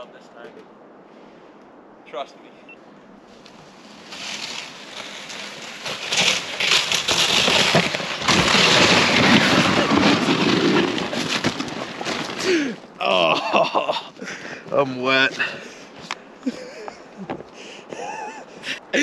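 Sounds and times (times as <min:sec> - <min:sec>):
rushing hiss of snow and brush: 0:03.2 - 0:07.6
sled scraping down snow: 0:03.8 - 0:12.7.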